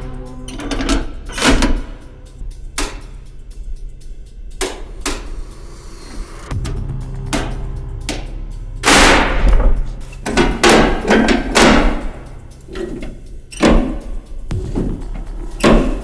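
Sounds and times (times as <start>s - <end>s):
rusty metal levers clanking: 0.0s - 3.4s, 8.8s - 16.0s.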